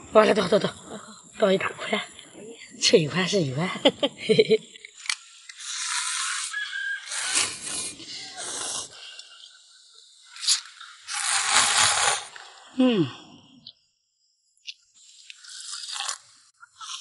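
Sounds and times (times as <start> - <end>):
person slurping noodles: 5.6 - 9.0, 10.4 - 12.7, 15.1 - 17.0.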